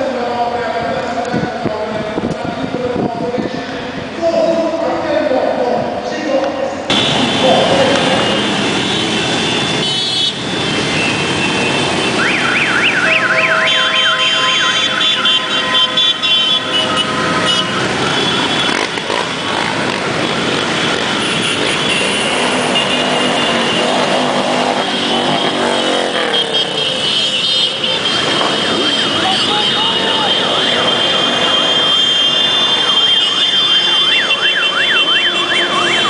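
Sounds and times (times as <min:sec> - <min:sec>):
motorcycle engines passing: 0:06.8 - 0:36.0
warbling siren tone: 0:11.0 - 0:18.6, 0:29.9 - 0:36.0.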